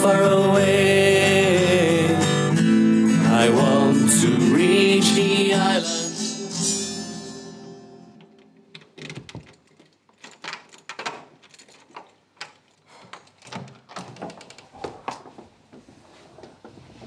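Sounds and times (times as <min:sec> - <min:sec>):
song: 0:00.0 - 0:08.6
door handle and latch clicking: 0:08.2 - 0:14.7
door swinging open: 0:08.7 - 0:12.6.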